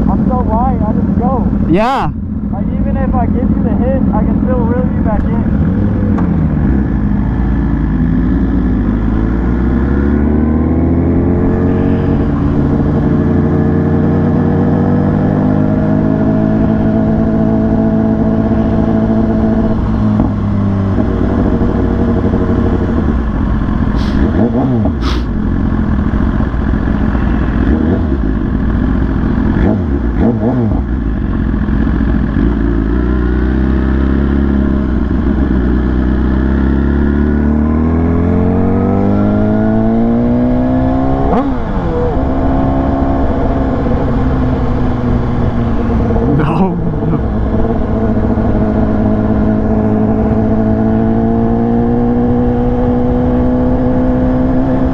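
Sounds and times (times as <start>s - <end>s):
vehicle engine accelerating: 0.0s - 54.9s.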